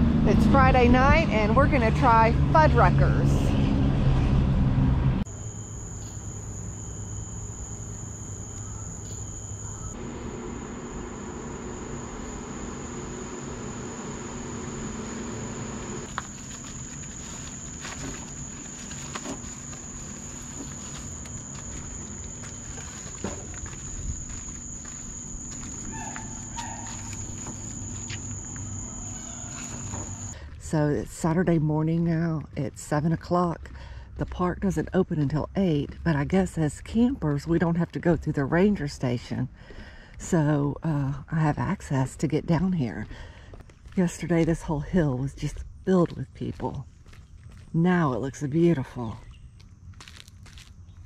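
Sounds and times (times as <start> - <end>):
car traffic rumble: 0.0 - 30.4
night insects trilling: 5.3 - 30.4.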